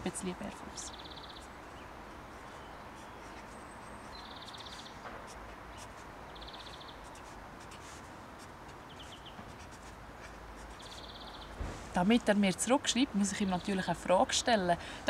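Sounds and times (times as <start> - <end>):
steady outdoor hush: 0.0 - 15.0
bird chirps: 0.7 - 5.0, 5.7 - 7.2, 10.7 - 11.6
pen scratching on paper: 2.3 - 11.1.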